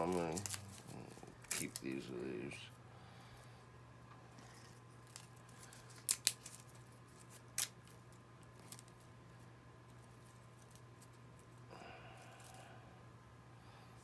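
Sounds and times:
dry leaves crackling and rustling: 0.0 - 2.6.

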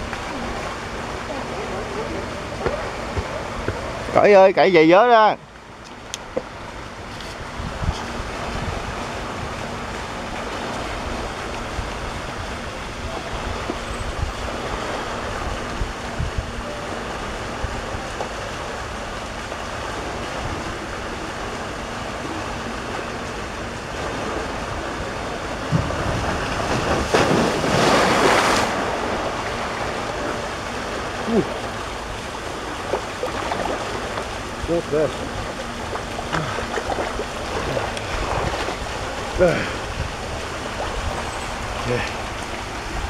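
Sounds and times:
water rushing: 0.0 - 43.0
wind buffeting microphone: 6.8 - 18.2, 32.2 - 43.0
person wading through water: 25.6 - 43.0.

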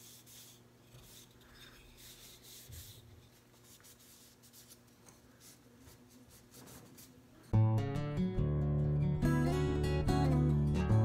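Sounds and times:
cloth rag rubbing wood: 0.0 - 7.3.

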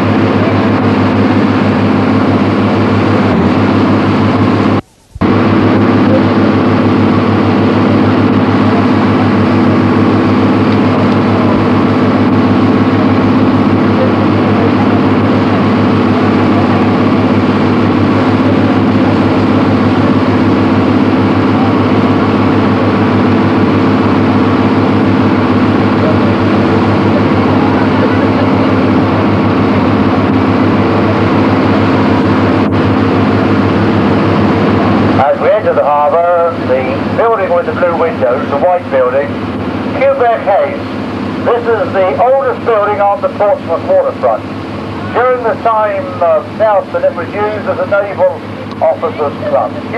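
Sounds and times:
boat engine droning: 0.0 - 49.9.

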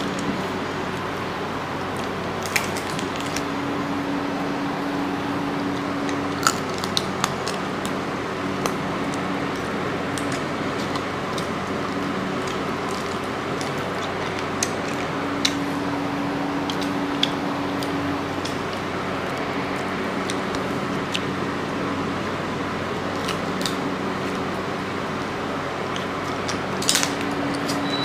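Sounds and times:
background hum and hiss: 0.0 - 28.0
prawn shells cracking: 1.9 - 3.5, 5.8 - 8.0, 8.6 - 21.3, 25.9 - 27.8.

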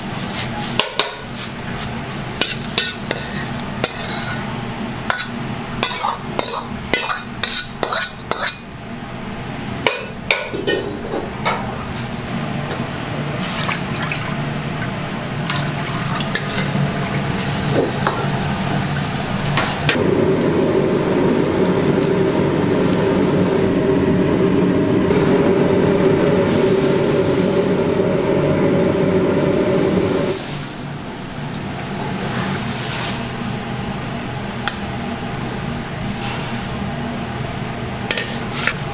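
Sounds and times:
wok stove burner rushing: 0.0 - 6.8, 16.3 - 33.8
metal ladle scraping a wok: 2.4 - 4.4, 5.1 - 8.6, 38.1 - 38.8.

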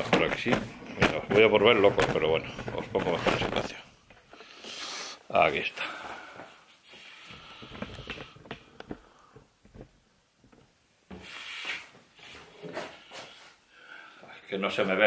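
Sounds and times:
clothing rustle: 0.0 - 13.7
footstep scuff: 9.6 - 13.6.

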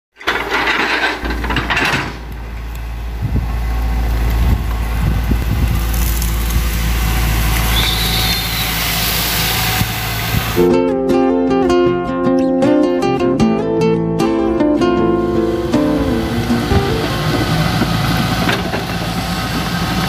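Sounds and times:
excavator diesel engine under load: 0.1 - 10.7, 14.7 - 20.0
crackling of vegetation: 1.2 - 8.8
roots snapping and knocking: 5.4 - 6.9.

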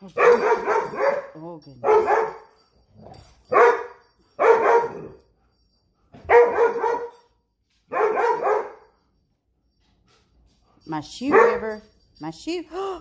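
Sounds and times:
dog barking: 0.2 - 2.4, 3.5 - 5.2, 6.2 - 7.3, 7.9 - 8.9, 11.2 - 11.8.

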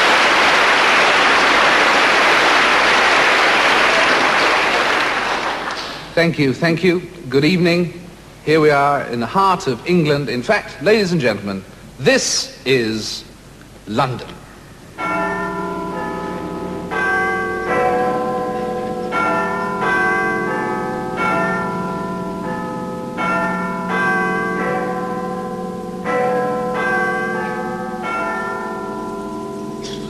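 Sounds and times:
church bells ringing: 14.9 - 30.0.

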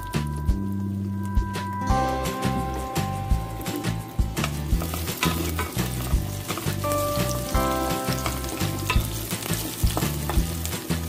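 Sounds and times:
background music with beat: 0.0 - 11.0
garlic sizzling in hot oil: 1.9 - 11.0
wooden spatula scraping pot: 3.5 - 7.5, 8.1 - 11.0.

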